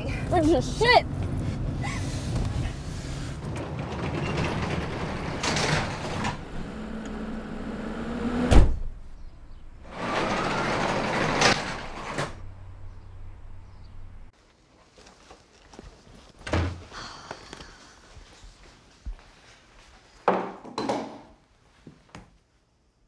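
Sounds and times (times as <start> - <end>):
rolling rushing rumble: 0.1 - 8.3.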